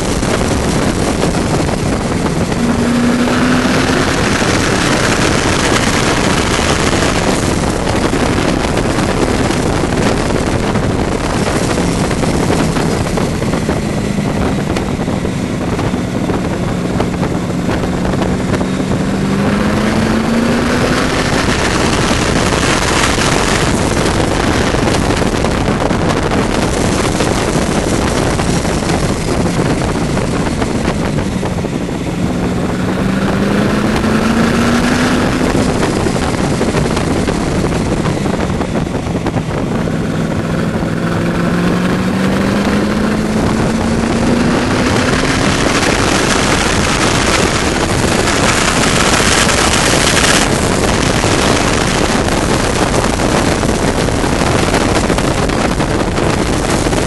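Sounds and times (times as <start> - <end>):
race car engine revving: 0.0 - 57.0
wind rush on microphone: 0.0 - 57.0.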